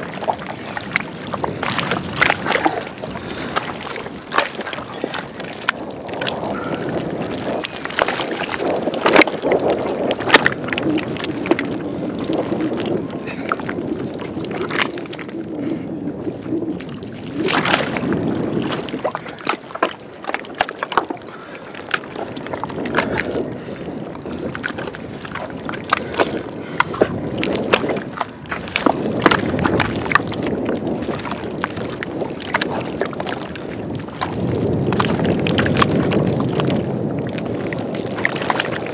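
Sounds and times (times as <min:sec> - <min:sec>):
wet mud squelching: 0:00.0 - 0:38.9
wet slaps and splashes: 0:17.4 - 0:18.0.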